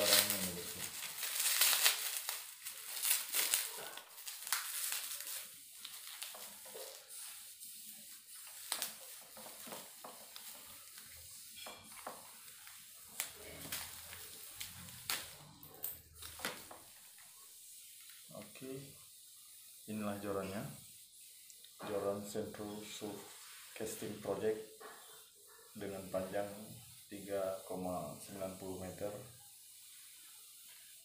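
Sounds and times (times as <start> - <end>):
bubble wrap crinkling: 0.0 - 21.8.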